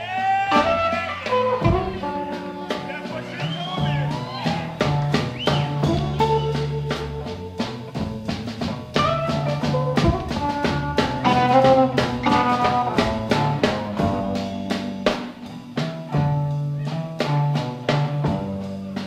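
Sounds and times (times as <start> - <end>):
drum kit with rimshots: 0.0 - 19.0
low repeating guitar line: 0.0 - 19.0
lead electric guitar bending notes: 9.0 - 15.0.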